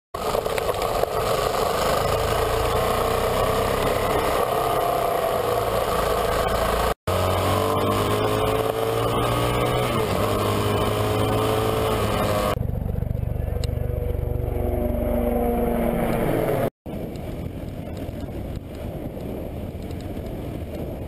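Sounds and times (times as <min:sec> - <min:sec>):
motorcycle engine running: 0:00.2 - 0:16.7.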